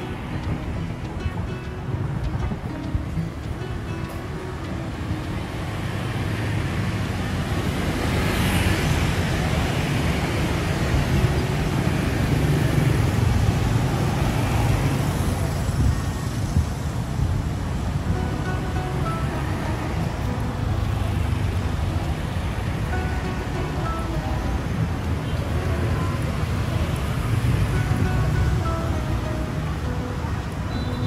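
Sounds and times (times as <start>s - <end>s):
scooters and cars passing: 0.0s - 31.0s.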